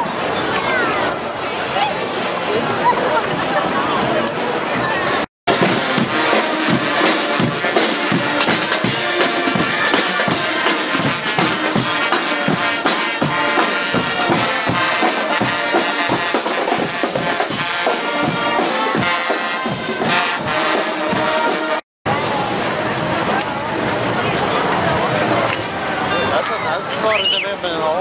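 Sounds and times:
bass and snare drums: 5.5s - 21.8s
trumpets and trombones: 5.5s - 21.8s.

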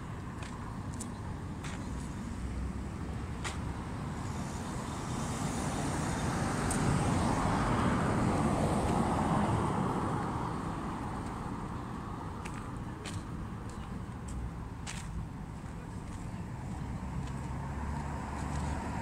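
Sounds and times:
car passing: 1.9s - 12.8s, 16.6s - 19.0s.

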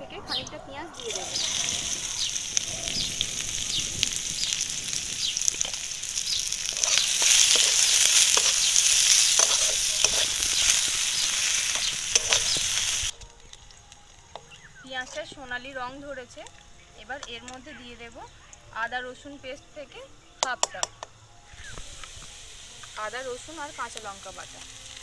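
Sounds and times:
onions sizzling in hot oil: 1.0s - 18.2s, 21.5s - 25.0s
metal spatula scraping a pan: 6.6s - 13.1s.

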